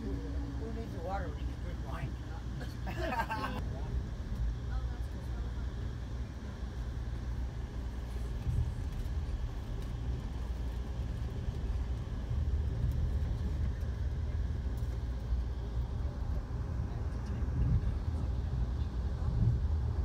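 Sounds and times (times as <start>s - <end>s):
train wheels rumbling on rails: 6.7s - 20.0s.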